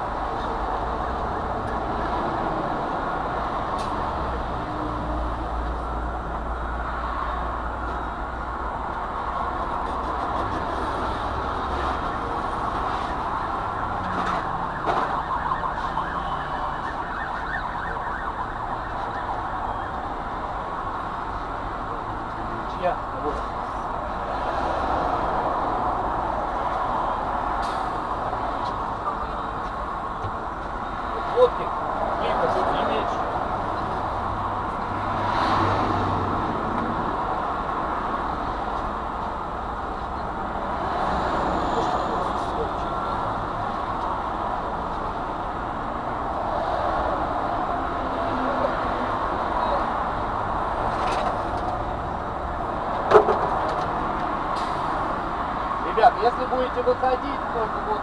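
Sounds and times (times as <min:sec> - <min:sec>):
highway traffic passing: 0:00.0 - 0:58.0.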